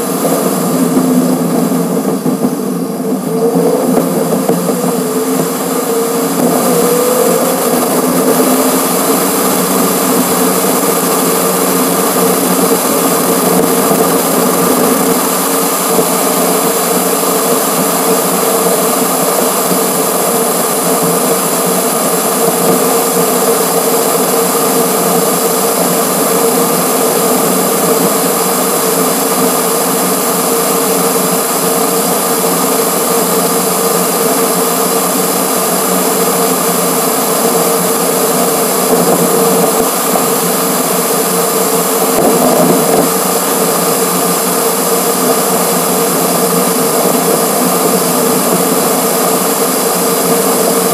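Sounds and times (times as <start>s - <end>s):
sped-up road noise drone: 0.0s - 50.9s.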